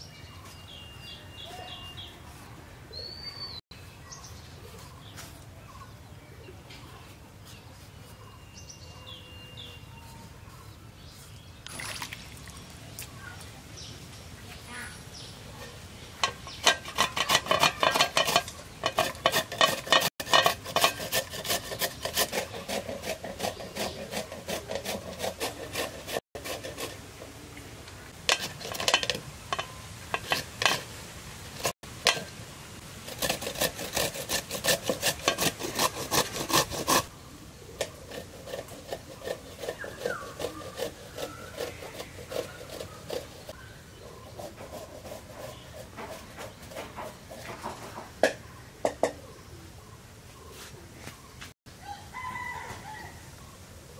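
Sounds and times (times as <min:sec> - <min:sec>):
papaya grated on metal grater: 0:16.2 - 0:27.3, 0:28.2 - 0:31.0, 0:33.0 - 0:37.1, 0:37.8 - 0:43.6, 0:44.3 - 0:47.8.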